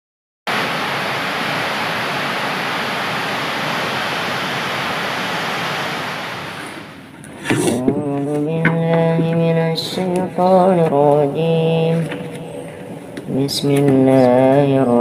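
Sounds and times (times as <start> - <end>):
steady hiss: 0.5 - 7.6.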